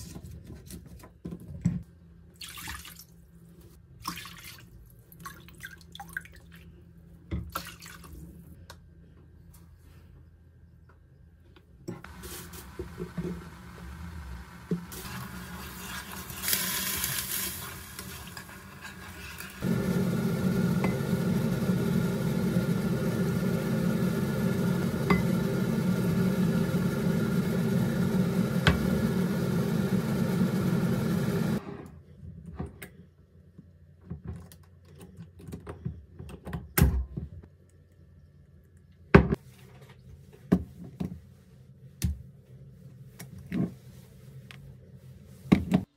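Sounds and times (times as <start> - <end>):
stirring in a pan: 14.7 - 19.8
sugar poured into a pan: 14.9 - 19.7.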